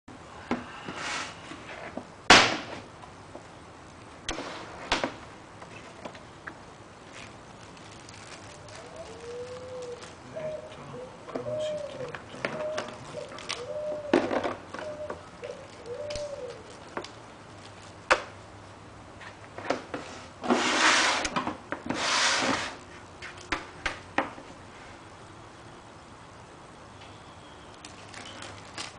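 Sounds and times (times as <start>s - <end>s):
rustling rubs: 7.0s - 10.4s.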